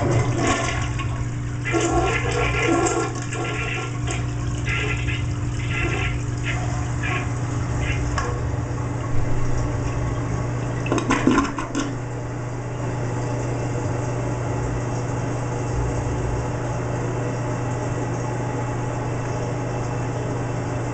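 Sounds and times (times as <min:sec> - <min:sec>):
toilet bowl gurgling: 0:00.0 - 0:12.1
toilet flushing: 0:00.0 - 0:12.1
toilet refilling hiss: 0:01.5 - 0:08.2.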